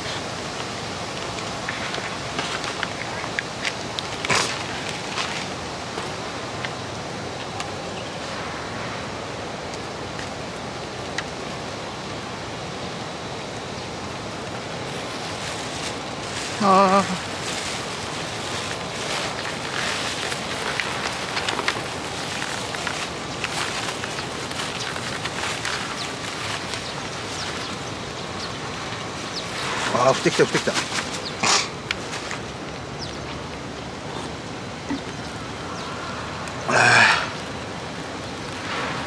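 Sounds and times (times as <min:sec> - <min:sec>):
steady rushing noise: 0:08.2 - 0:39.0.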